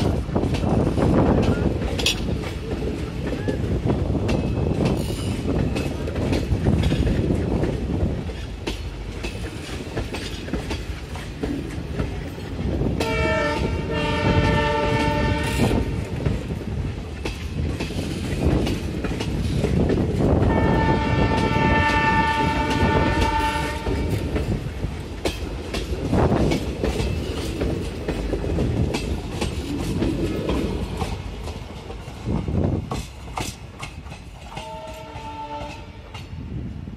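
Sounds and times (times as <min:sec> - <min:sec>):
train wheels clattering over rail joints: 0:00.0 - 0:36.6
locomotive horn blasts: 0:13.0 - 0:16.0, 0:20.5 - 0:24.2, 0:34.6 - 0:36.1.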